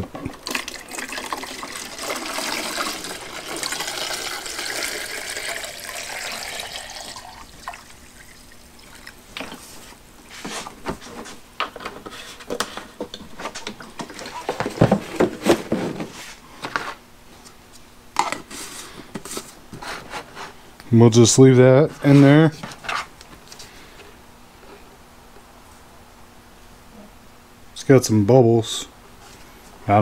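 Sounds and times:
liquid pouring into plastic jar: 0.3 - 9.6.

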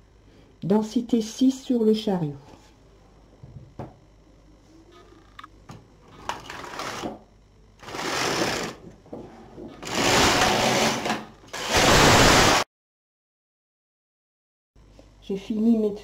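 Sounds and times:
knitting machine carriage rasping: 7.8 - 8.8.

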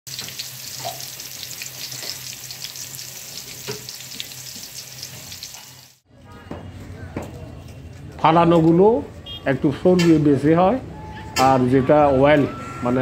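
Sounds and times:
oil popping: 0.1 - 5.7
hot oil sizzling in a wok: 0.1 - 6.0.

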